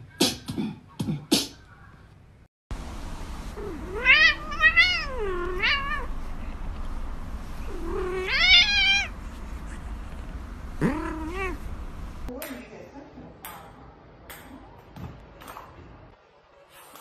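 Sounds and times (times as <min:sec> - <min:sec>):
cat meowing: 0:03.6 - 0:06.1, 0:07.7 - 0:09.1, 0:10.8 - 0:11.6.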